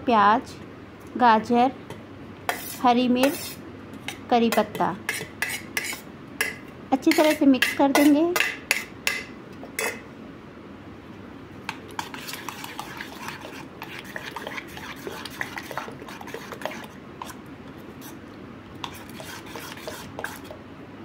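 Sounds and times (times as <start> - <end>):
metal spoon stirring batter in bowl: 2.5 - 10.0, 11.7 - 18.2, 18.8 - 20.6.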